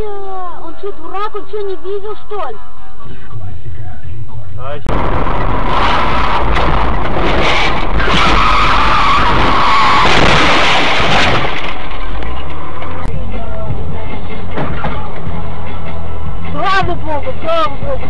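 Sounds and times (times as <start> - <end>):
low road rumble: 0.0 - 18.0
car tyres skidding: 6.3 - 13.0.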